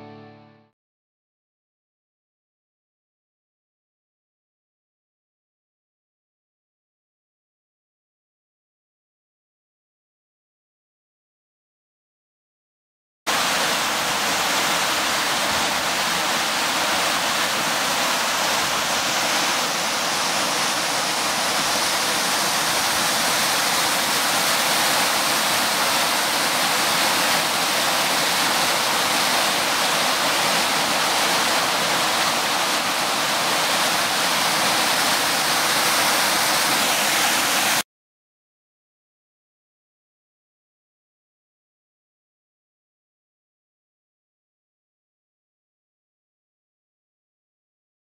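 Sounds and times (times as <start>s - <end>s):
waterfall rushing over boulders: 13.3s - 37.8s.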